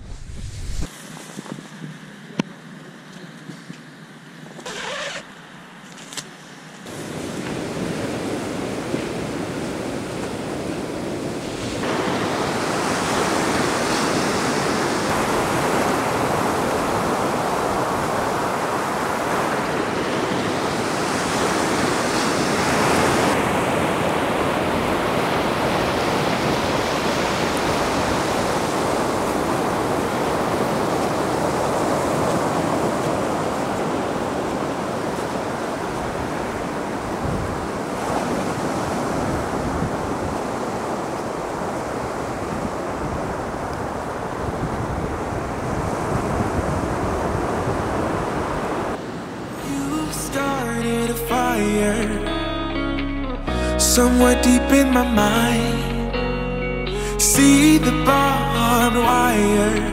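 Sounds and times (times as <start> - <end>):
tent zipper pulled open: 4.6 - 5.3
surf breaking on beach: 6.9 - 52.1.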